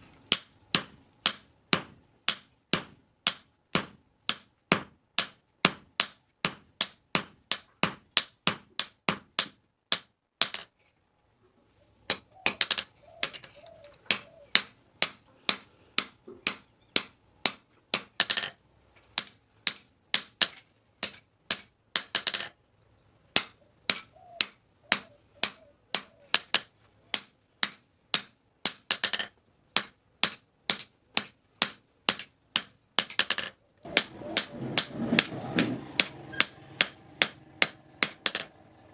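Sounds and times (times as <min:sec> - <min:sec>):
hammer striking metal blade: 0:33.9 - 0:38.5.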